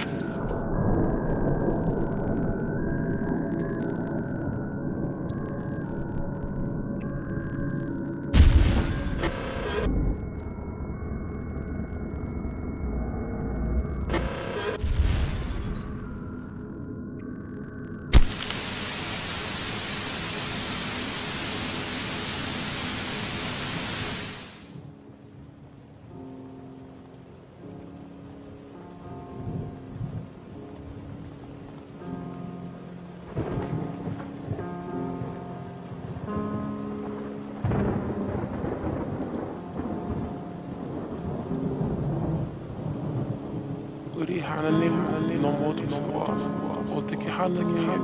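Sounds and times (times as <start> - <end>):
steady rain: 0.0 - 16.6, 17.6 - 48.0
television static hiss: 8.9 - 9.9, 14.1 - 14.8, 18.1 - 24.8, 44.2 - 48.0.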